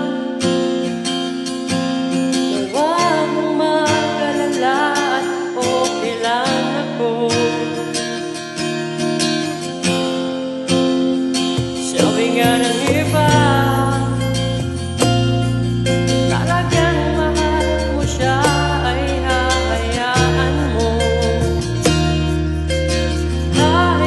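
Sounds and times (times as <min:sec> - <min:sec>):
man singing into microphone: 0:00.0 - 0:00.5, 0:02.5 - 0:08.1, 0:11.8 - 0:14.4, 0:16.3 - 0:22.2, 0:23.6 - 0:24.0
strummed acoustic guitar backing: 0:00.0 - 0:24.0.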